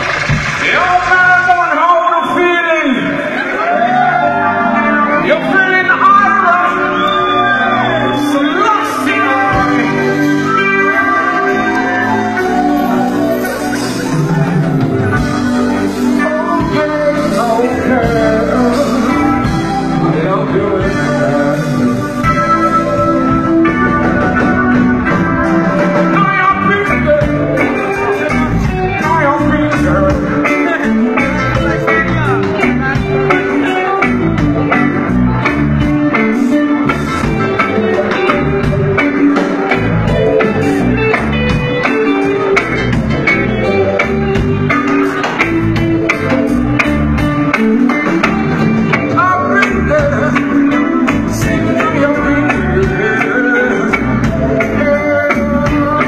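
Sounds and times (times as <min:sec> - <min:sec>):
bass line: 0:00.0 - 0:56.0
guitar: 0:00.0 - 0:56.0
steady drum beat: 0:13.7 - 0:56.0.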